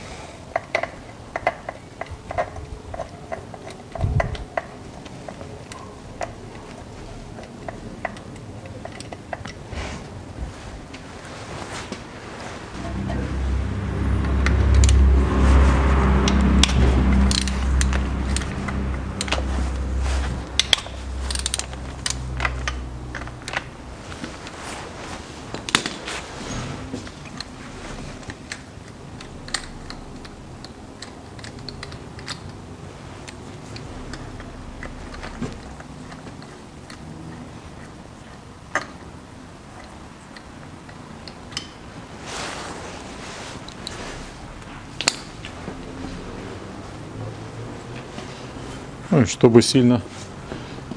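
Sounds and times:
low steady hum: 0:00.0 - 0:49.2.

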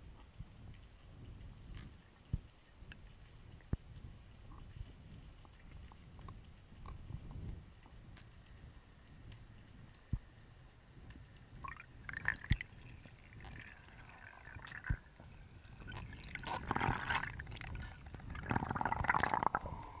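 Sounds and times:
underwater rumble of moving water: 0:02.8 - 0:20.0
bubbles gurgling underwater: 0:11.6 - 0:20.0.

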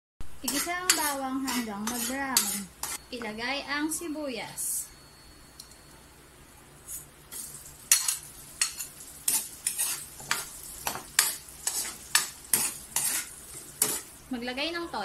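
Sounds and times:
metal ladle scraping a wok: 0:00.4 - 0:03.0, 0:07.9 - 0:10.5, 0:11.2 - 0:14.1.

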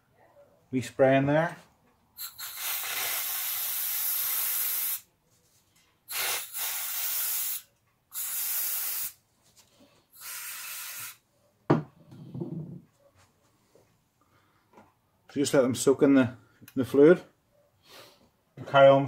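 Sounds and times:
aerosol can spraying: 0:02.2 - 0:05.1, 0:06.1 - 0:09.2, 0:10.2 - 0:11.2.

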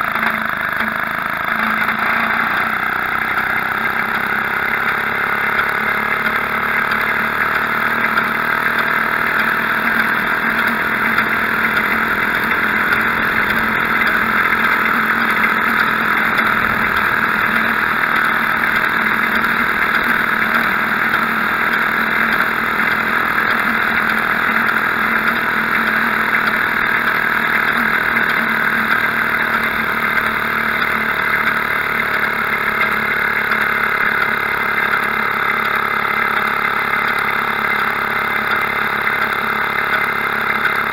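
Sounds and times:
two-stroke engine running: 0:00.0 - 0:40.9.

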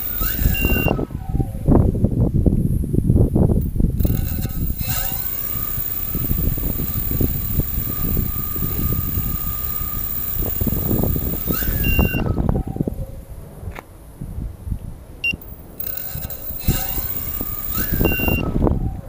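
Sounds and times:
drone motors whining: 0:00.0 - 0:01.0, 0:03.6 - 0:12.3, 0:15.4 - 0:18.7
wind buffeting microphone: 0:00.0 - 0:19.0.

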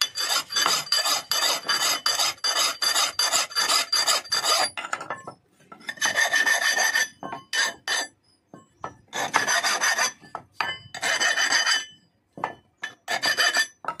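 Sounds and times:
file rasping on metal: 0:00.0 - 0:04.8, 0:05.9 - 0:08.2, 0:09.1 - 0:10.3, 0:11.0 - 0:12.0, 0:12.8 - 0:14.0.

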